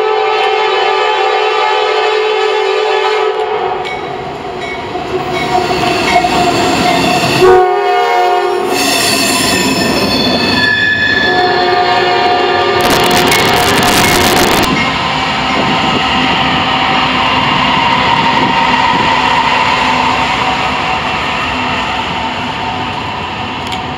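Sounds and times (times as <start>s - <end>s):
locomotive horn chord: 0.0s - 3.8s, 7.4s - 8.8s, 11.2s - 13.5s.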